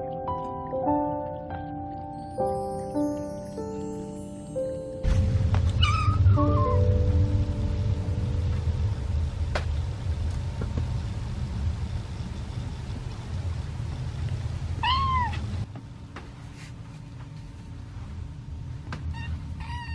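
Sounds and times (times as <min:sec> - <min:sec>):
low steady rumble: 0:05.0 - 0:15.7
kitten meowing: 0:05.8 - 0:06.8, 0:14.8 - 0:15.4, 0:19.1 - 0:19.9.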